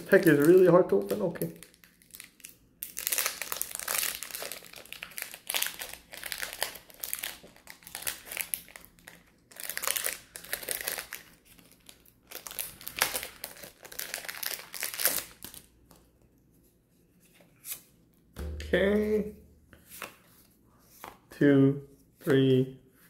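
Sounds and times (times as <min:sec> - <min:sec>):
foil wrapper crinkling: 0:00.0 - 0:15.8.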